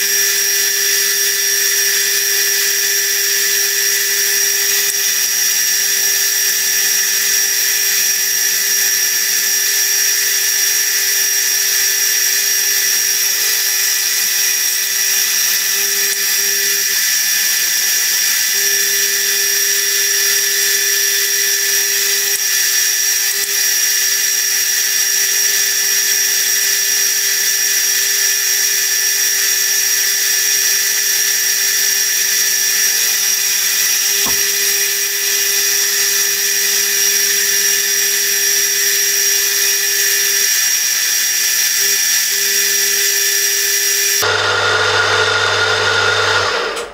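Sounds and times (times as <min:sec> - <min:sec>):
milling machine spindle whining: 0:00.0 - 0:46.9.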